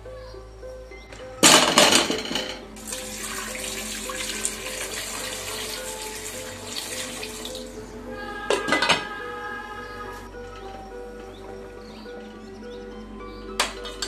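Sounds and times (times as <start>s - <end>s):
water pouring into pot: 2.8s - 7.8s.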